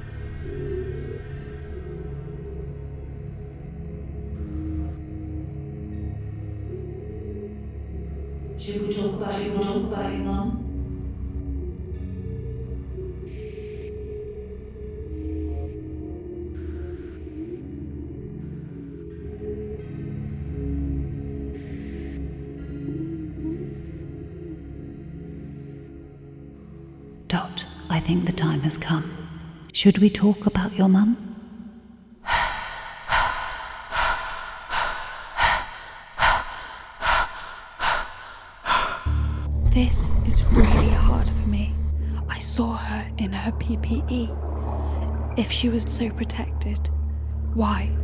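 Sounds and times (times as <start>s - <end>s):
dark ambient drone music: 0.0s - 48.0s
woman breathing heavily: 32.2s - 39.5s.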